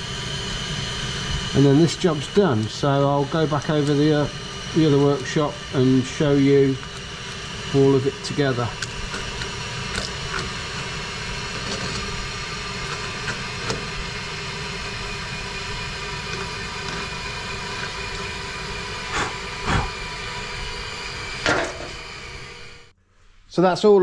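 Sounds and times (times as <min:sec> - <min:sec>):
workshop hiss: 0:00.0 - 0:09.5, 0:10.2 - 0:22.6
machine hum: 0:00.0 - 0:23.4.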